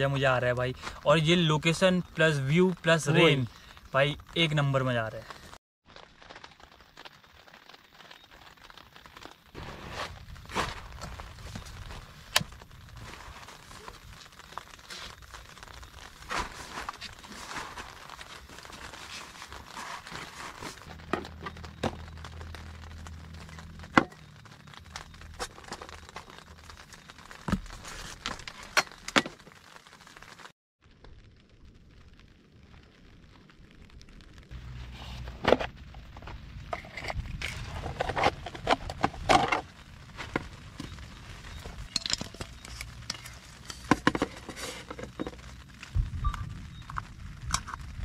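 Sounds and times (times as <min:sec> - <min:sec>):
crinkling and rustling in tent: 0:04.6 - 0:30.5, 0:34.4 - 0:48.0.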